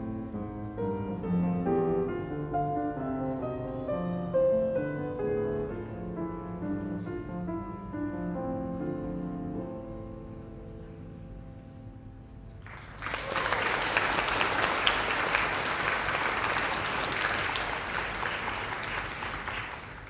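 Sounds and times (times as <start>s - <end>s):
audience applause: 12.6s - 20.0s.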